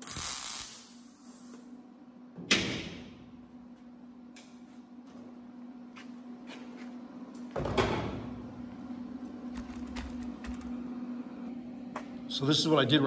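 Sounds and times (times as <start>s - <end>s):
welding arc crackle: 0.0s - 1.6s
steady hum: 0.0s - 13.0s.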